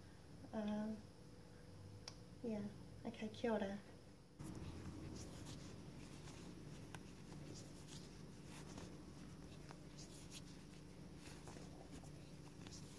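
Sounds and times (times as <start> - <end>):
low room hum: 0.0 - 12.9
cords rustling and scratching: 4.4 - 12.9.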